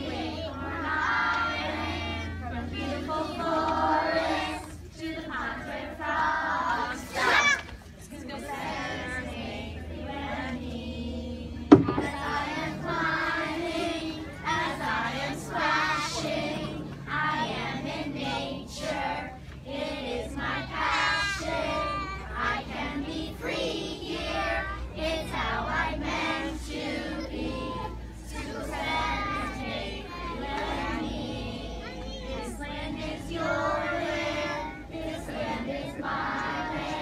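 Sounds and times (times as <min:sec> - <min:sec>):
children singing in unison: 0:00.0 - 0:07.6, 0:08.4 - 0:37.0
sharp knock: 0:11.7 - 0:12.1.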